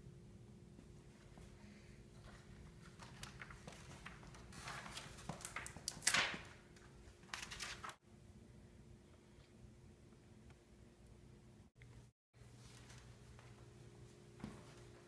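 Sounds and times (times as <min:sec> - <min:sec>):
paper rustling: 0:02.2 - 0:08.0.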